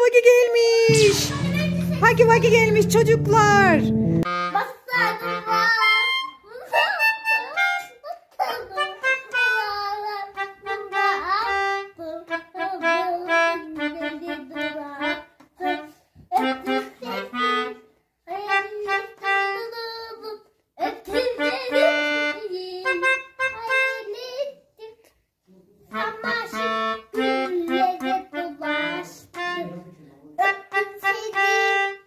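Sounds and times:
melodica tune: 0:00.9 - 0:07.9, 0:08.8 - 0:17.9, 0:21.4 - 0:24.1, 0:26.0 - 0:29.8.

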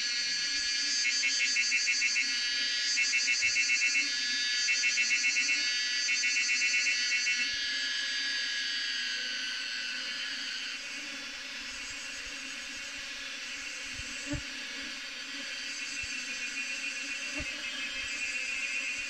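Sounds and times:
high insect-like hiss: 0:00.0 - 0:19.0.

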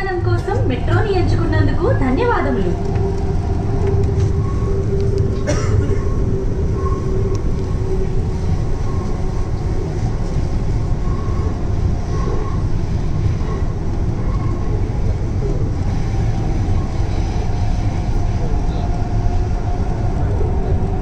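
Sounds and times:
steady hum: 0:00.0 - 0:21.0
train rumble inside car: 0:00.0 - 0:21.0.

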